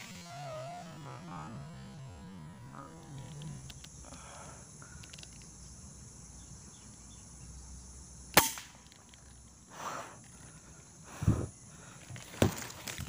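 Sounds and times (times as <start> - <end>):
high drone of insects: 0.0 - 13.0
air rifle shot: 8.4 - 8.8.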